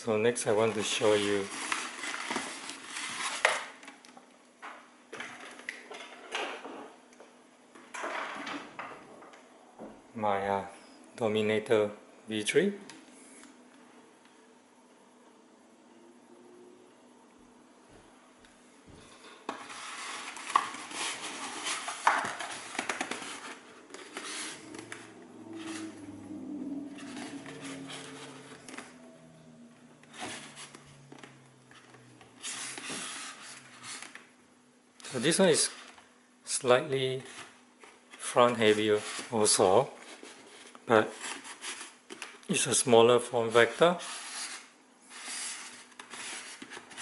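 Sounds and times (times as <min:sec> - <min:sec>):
soft scraping rustles: 0:19.0 - 0:29.1, 0:30.0 - 0:34.2, 0:43.4 - 0:47.0.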